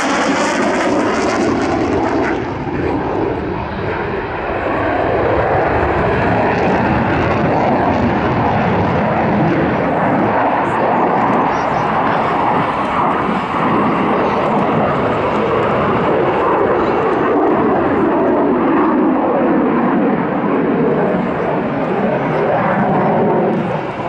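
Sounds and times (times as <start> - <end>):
loud jet engine noise: 0.0 - 24.0.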